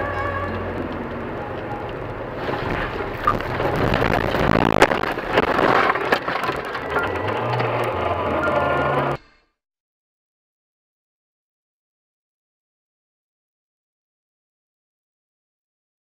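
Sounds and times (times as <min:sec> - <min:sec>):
branches cracking and knocking: 0:02.4 - 0:08.0.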